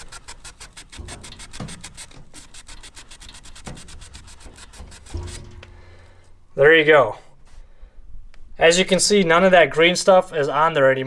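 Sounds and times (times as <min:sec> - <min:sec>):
scouring pad scrubbing metal rod: 0:00.0 - 0:05.8
dull handling bump: 0:03.6 - 0:06.0.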